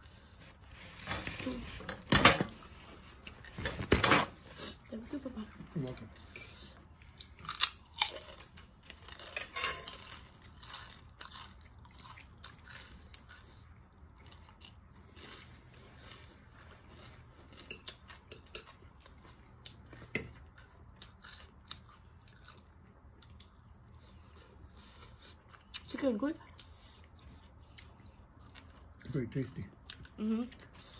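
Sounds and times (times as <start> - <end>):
chewing and crunching food: 0.0 - 30.9.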